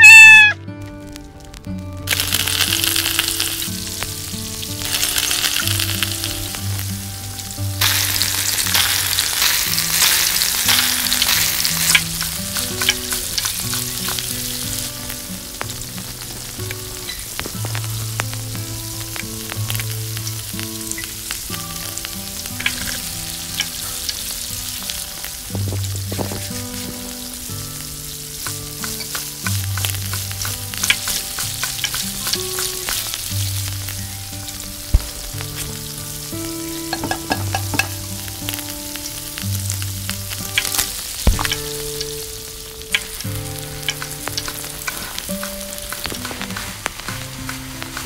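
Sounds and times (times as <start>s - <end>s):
oil sizzling and crackling: 0.0s - 48.0s
soft background music: 0.0s - 48.0s.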